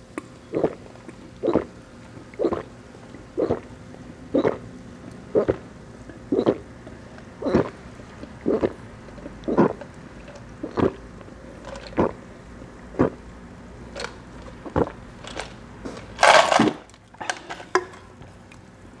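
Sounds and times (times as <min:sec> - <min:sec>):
person gulping: 0:00.4 - 0:06.8, 0:07.4 - 0:12.2, 0:12.9 - 0:13.3, 0:14.6 - 0:15.0.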